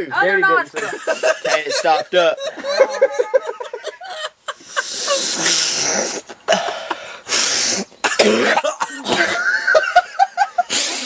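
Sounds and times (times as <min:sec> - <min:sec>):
man coughing and hawking: 0:08.0 - 0:11.0.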